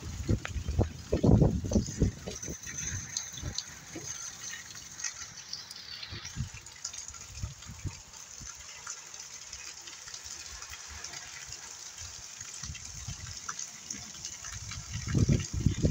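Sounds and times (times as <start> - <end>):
wind gusting on microphone: 0.0 - 4.2, 6.0 - 6.6, 7.3 - 8.0, 14.4 - 15.9
heavy rain falling: 0.0 - 7.1.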